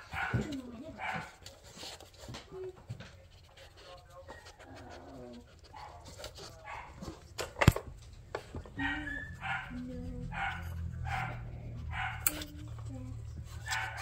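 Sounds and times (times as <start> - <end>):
puppy whining: 4.2 - 6.0, 8.7 - 12.2.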